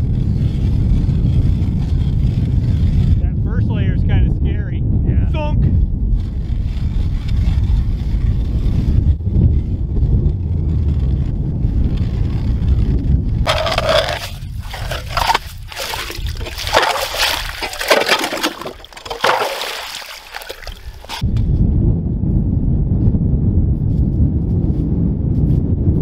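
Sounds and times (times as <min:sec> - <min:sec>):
ice auger churning slush: 0:00.0 - 0:03.2, 0:13.4 - 0:21.2
wind rumble on microphone: 0:00.0 - 0:26.0.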